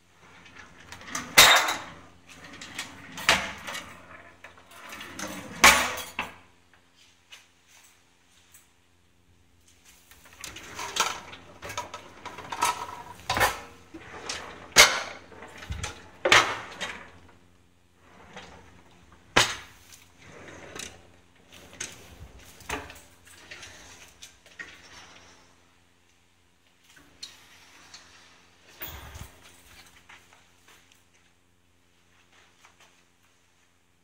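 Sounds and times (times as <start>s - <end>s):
cupboard doors and drawers: 0.3s - 6.4s, 10.2s - 17.4s, 18.0s - 25.6s, 27.0s - 30.2s.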